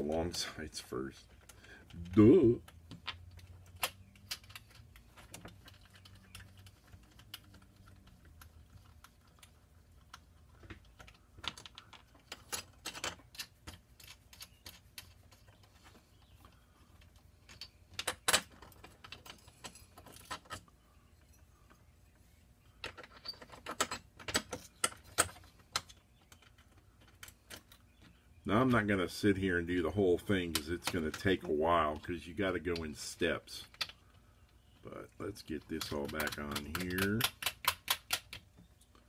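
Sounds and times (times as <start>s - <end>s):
metal tool clicks and taps: 35.8s - 38.4s.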